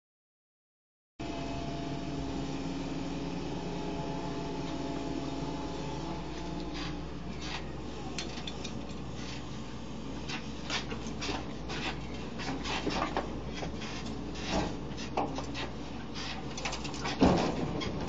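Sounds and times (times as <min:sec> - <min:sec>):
excavator engine humming: 0:01.2 - 0:18.0
scraping and creaking knocks: 0:10.3 - 0:18.0.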